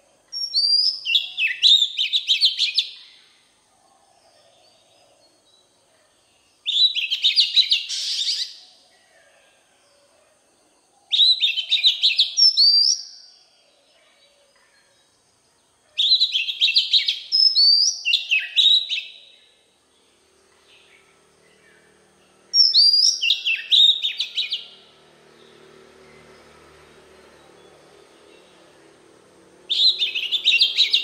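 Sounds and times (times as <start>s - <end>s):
bird singing whistled phrases: 0.4s - 3.0s, 6.6s - 8.6s, 11.1s - 13.3s, 16.0s - 19.4s, 22.6s - 24.8s, 29.7s - 31.0s.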